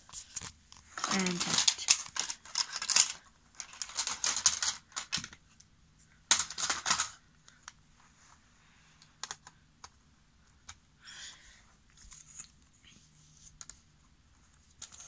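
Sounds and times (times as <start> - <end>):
plastic toy track clicking: 1.0 - 5.4.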